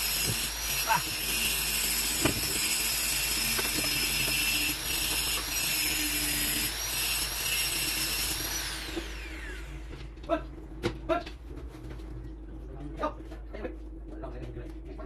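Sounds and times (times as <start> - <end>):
power tool motor whining: 0.0 - 10.0.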